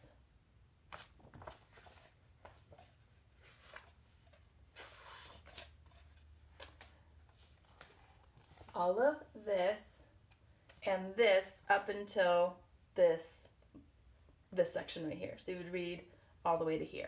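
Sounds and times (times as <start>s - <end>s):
book pages turning: 0.9s - 8.9s.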